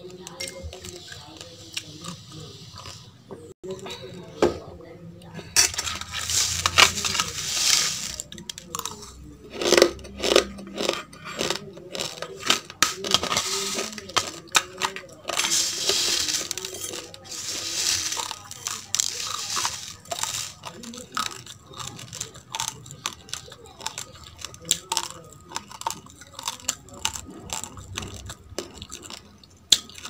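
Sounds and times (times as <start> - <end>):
chewing raw rice crunching: 5.8 - 30.0
rice grains rustling in plastic bowl: 5.9 - 8.4, 13.0 - 24.1.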